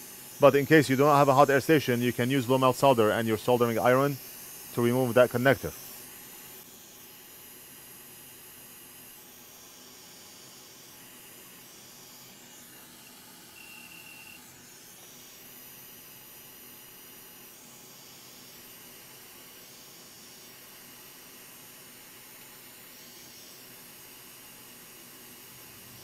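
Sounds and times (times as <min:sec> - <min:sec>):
hot air hiss: 0:00.0 - 0:07.0.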